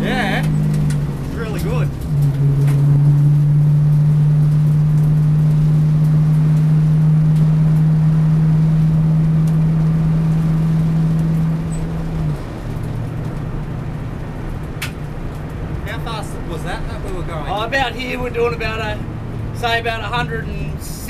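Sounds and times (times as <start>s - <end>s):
race car engine from inside cabin: 0.0s - 21.0s
road and wind noise: 0.0s - 21.0s.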